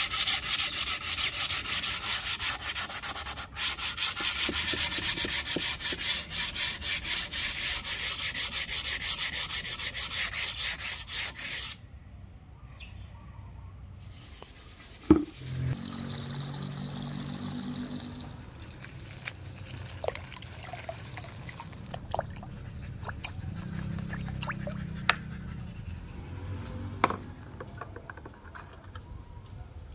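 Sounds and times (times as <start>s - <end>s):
sandpaper rubbing wood: 0.0s - 11.8s, 14.0s - 15.8s
water being stirred: 15.1s - 25.2s
water running into bucket: 15.8s - 24.7s.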